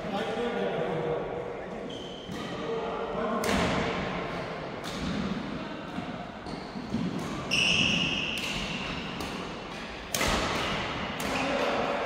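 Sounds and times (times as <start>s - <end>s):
rackets hitting shuttlecock: 2.2s - 12.0s
shoe squeaking on wooden floor: 7.4s - 8.2s.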